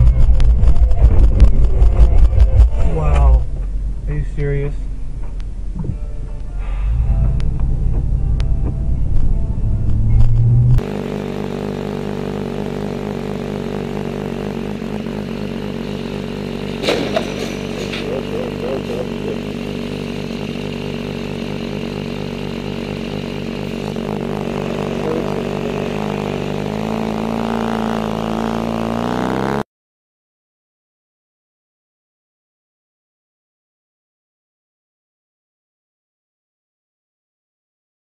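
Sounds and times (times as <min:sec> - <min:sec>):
motorcycle engine idling and revving: 0:00.0 - 0:29.7.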